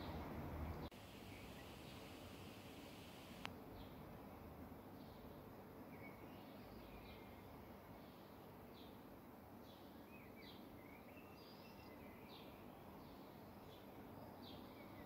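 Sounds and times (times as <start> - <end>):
outdoor background hiss: 0.0 - 15.0
faint bird chirps: 1.2 - 3.5.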